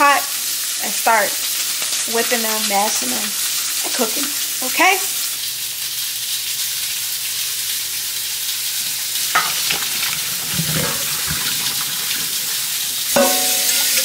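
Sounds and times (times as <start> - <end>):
meat sizzling in a pan: 0.0 - 14.0
water pouring into a colander: 0.0 - 14.0
metal knock: 13.2 - 13.7.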